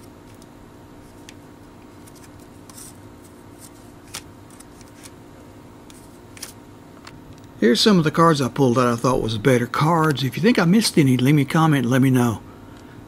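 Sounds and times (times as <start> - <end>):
cards rustling and clicking: 0.0 - 5.2, 5.8 - 7.4
steady low hum: 0.0 - 13.0.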